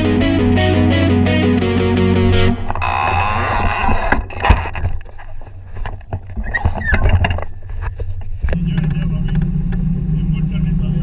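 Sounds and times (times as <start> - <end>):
outboard engine drone: 8.3 - 11.0.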